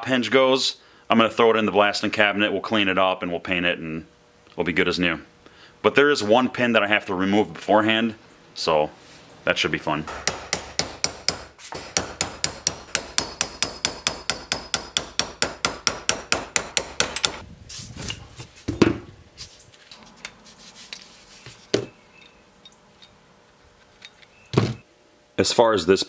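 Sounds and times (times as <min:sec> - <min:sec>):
hammer striking pin punch: 0:10.1 - 0:17.4.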